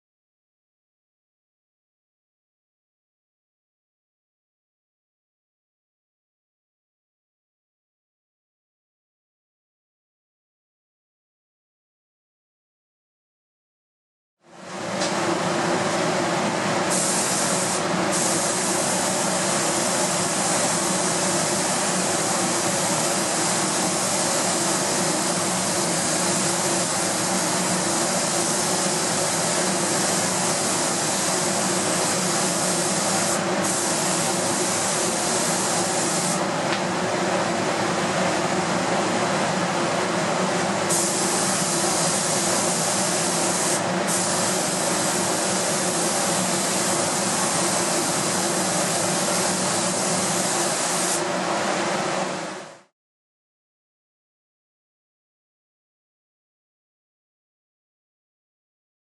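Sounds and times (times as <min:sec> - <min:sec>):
spray gun hissing: 0:16.9 - 0:36.4, 0:40.9 - 0:51.2.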